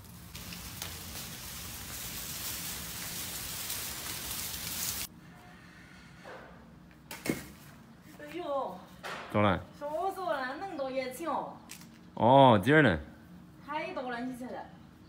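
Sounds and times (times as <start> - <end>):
vines dragged along ground: 0.0 - 5.1.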